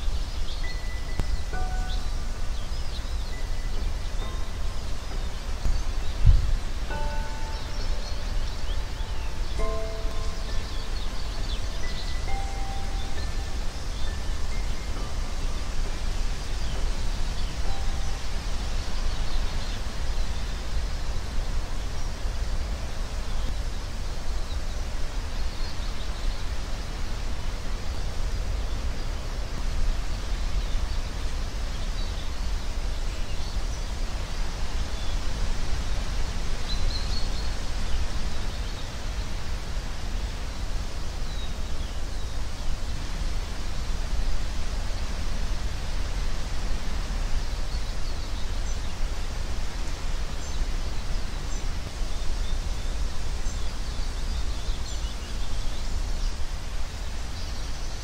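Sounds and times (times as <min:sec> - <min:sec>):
even hiss: 0:00.0 - 0:58.0
faint high chirps: 0:00.6 - 0:15.7.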